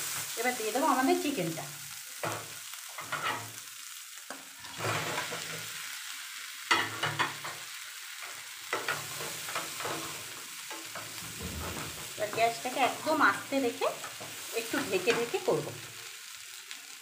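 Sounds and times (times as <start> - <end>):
food sizzling in frying pan: 0.0 - 17.0.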